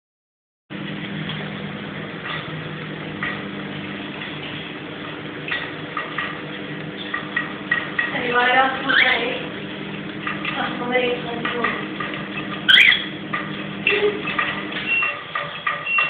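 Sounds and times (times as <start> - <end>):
steady low hum: 0.7 - 15.8
cockatiel chirps: 12.7 - 13.1.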